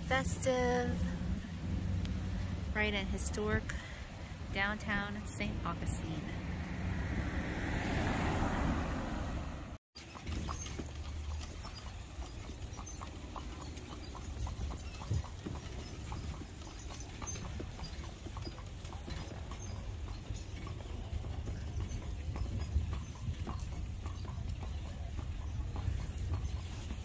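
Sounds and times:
low steady rumble: 0.0 - 7.4
horse hooves clip-clopping on pavement: 0.0 - 9.0, 10.0 - 27.0.

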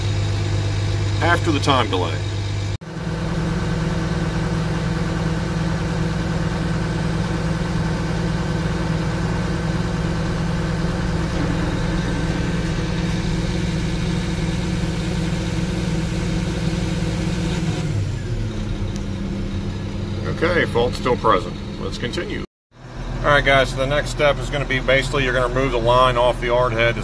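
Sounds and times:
diesel engine idling: 0.0 - 27.0.

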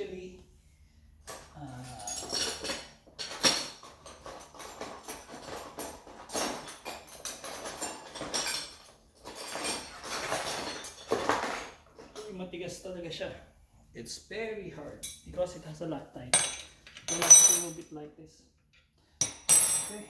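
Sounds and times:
tools rustling and clattering: 1.2 - 12.4, 16.3 - 18.0.

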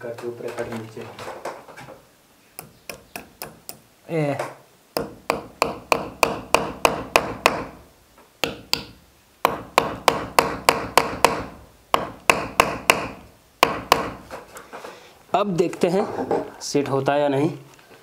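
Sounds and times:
hammer knocking a nail into wall: 5.0 - 7.8, 8.4 - 14.4.

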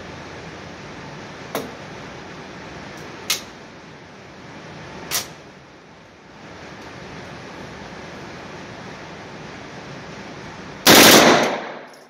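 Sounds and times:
sharp gunshot cracks: 10.9 - 12.0.

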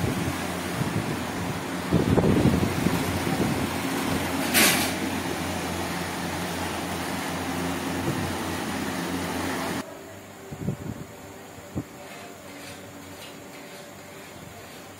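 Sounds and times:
exhaust fan running: 0.0 - 14.9
brief hiss: 4.4 - 5.1.

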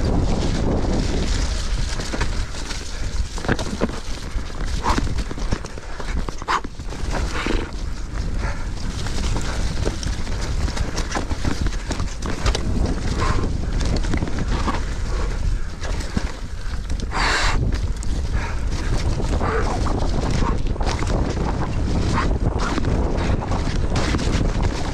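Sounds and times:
bike rattling over bumps: 0.0 - 24.9
bike scrape: 0.0 - 24.9
bike tyres rumbling over dirt: 0.0 - 24.9.

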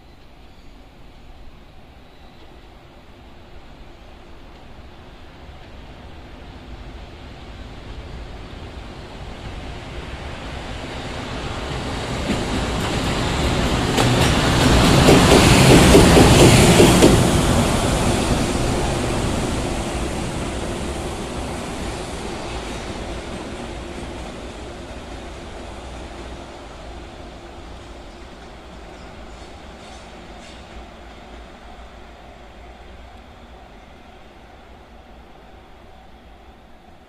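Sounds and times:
train passing: 0.0 - 37.0.

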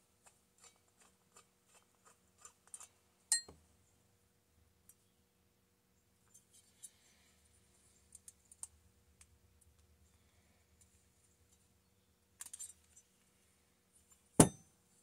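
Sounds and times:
light clicks of tools and parts: 7.9 - 9.9, 12.4 - 13.3.

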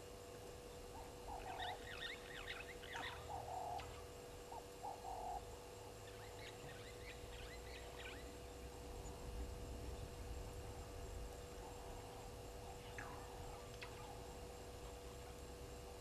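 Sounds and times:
faint steady hum: 0.0 - 16.0
small birds chirping: 0.7 - 5.4, 6.0 - 9.2, 11.5 - 15.2.

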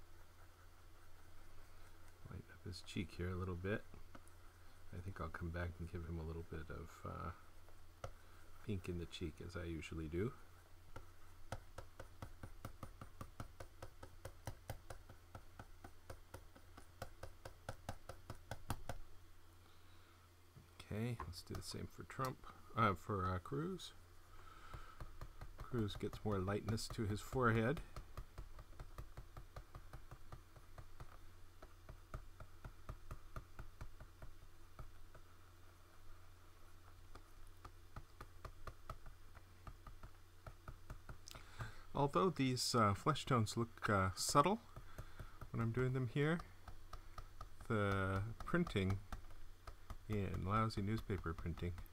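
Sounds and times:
steady low hum: 0.0 - 51.9
pen tapping on tablet: 10.9 - 19.1, 24.4 - 35.3, 36.8 - 41.9, 44.2 - 51.9
computer input taps and clicks: 44.3 - 51.9.

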